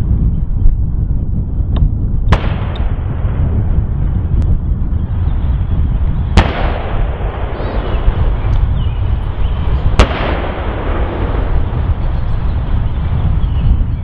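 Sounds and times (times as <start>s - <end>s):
wind rumble on microphone: 0.0s - 14.0s
gunshots with echo: 6.4s - 8.5s, 9.8s - 11.8s.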